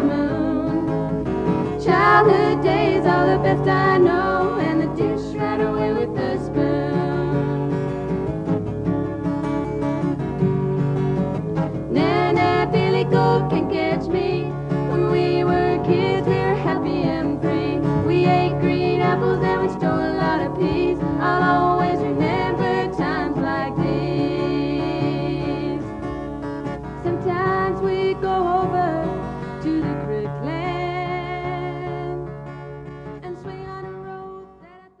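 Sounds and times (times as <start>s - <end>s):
country music with guitar: 0.0s - 35.0s.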